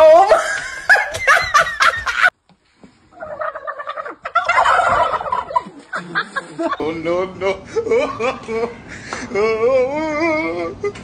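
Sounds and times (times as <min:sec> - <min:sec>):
people laughing: 0:00.1 - 0:02.3, 0:04.6 - 0:06.9, 0:07.7 - 0:08.8
turkeys gobbling: 0:03.1 - 0:06.8.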